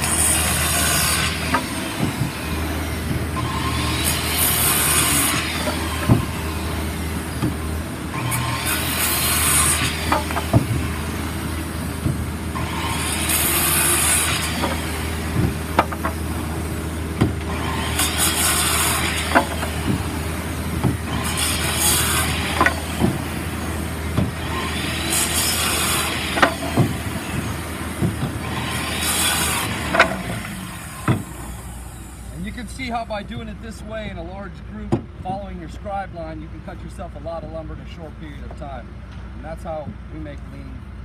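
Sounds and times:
circular saw cutting boards: 0.0 - 34.2
sharp knocks: 10.0 - 10.9, 14.6 - 16.2, 19.0 - 20.1, 26.3 - 28.5.

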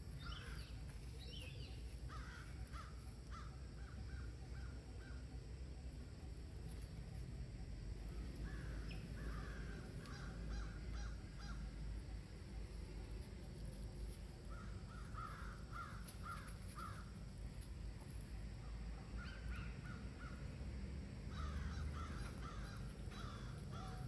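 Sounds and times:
crows cawing: 2.1 - 4.7, 8.4 - 11.7, 14.5 - 17.1, 21.3 - 24.0.

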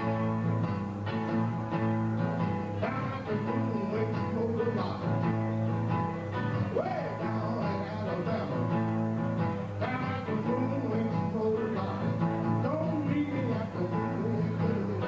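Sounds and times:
electric guitar playing blues: 0.0 - 15.0
man singing: 2.7 - 5.4, 6.4 - 15.0.

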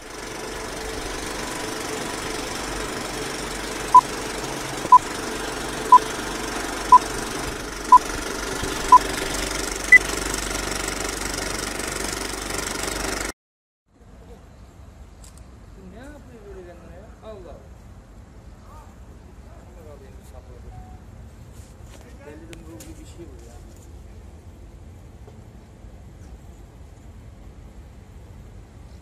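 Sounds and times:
film projector rattling: 0.0 - 13.3
short beeps: 20.8 - 21.0.

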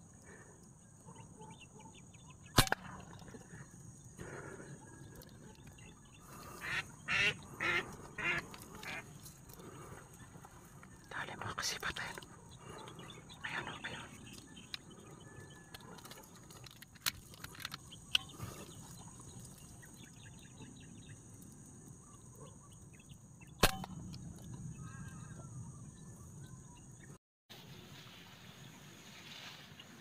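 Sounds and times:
air rifle shot crack: 2.5 - 3.1, 23.6 - 24.1.

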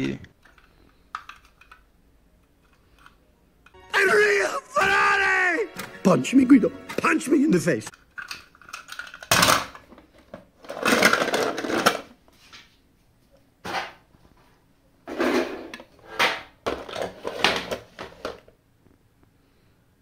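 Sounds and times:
toy cars clattering in plastic tub: 8.0 - 12.1, 15.1 - 18.5.

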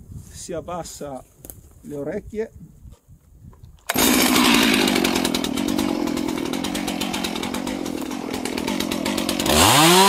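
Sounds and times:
chainsaw running: 3.9 - 10.0.

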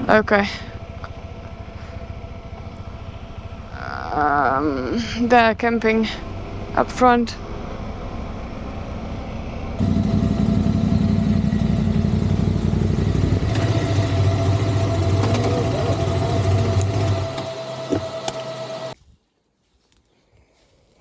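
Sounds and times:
motorcycle engines idling: 0.0 - 19.0.

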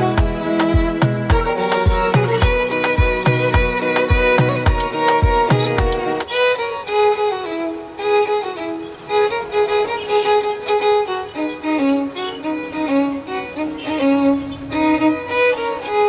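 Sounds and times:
regular drum beat: 0.0 - 6.2
violin melody: 0.0 - 16.0.

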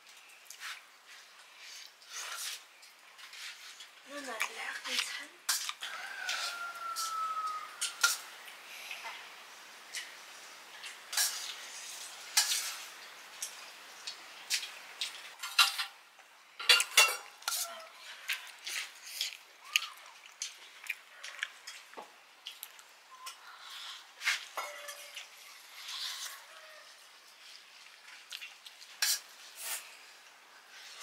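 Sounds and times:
metal utensils clinking on dishes: 7.8 - 8.2, 10.8 - 11.6, 12.3 - 12.9, 14.6 - 16.0, 16.6 - 17.8, 24.2 - 25.4.

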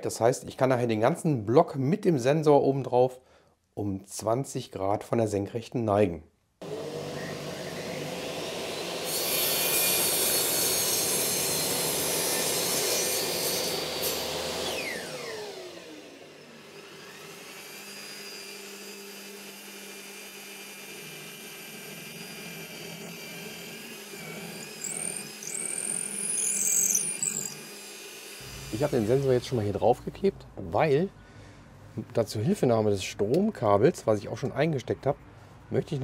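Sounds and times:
drill press boring into wood: 6.6 - 29.4
table saw cutting plywood: 6.6 - 30.0
saw motor winding down: 6.6 - 30.4.

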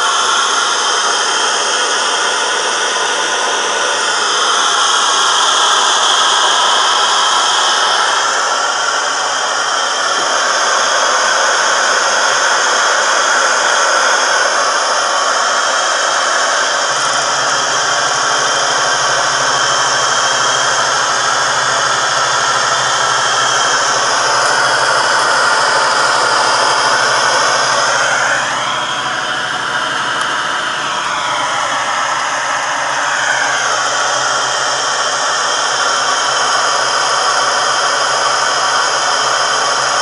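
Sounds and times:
gas stove burner hissing: 0.0 - 40.0
whine rising in pitch: 0.0 - 40.0
low steady hum: 16.5 - 35.3.

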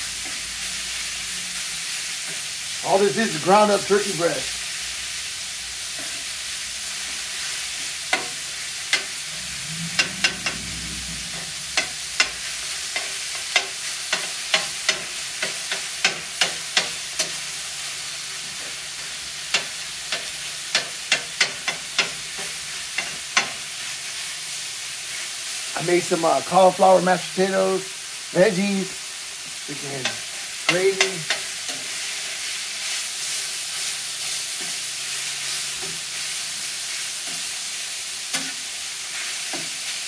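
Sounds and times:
meat sizzling on a griddle: 0.0 - 40.0
spatula scraping and tapping griddle: 8.1 - 9.2, 9.9 - 17.5, 18.4 - 23.6, 30.0 - 37.5, 38.3 - 39.9.

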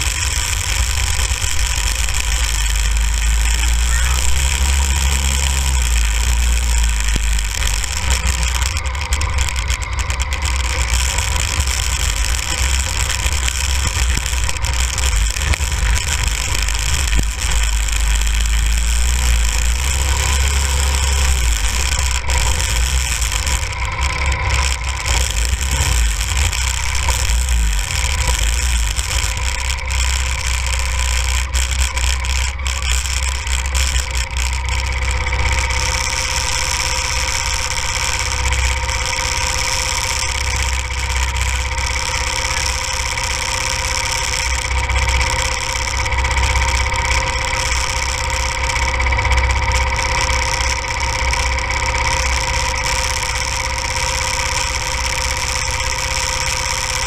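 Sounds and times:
go-kart engine idling: 0.0 - 57.0.

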